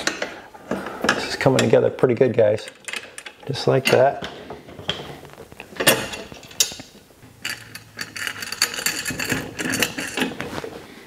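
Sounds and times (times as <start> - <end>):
metal bolts clinking on bracket: 2.6 - 5.0, 5.8 - 10.4
rapid metallic clicks and rattles: 7.4 - 10.4.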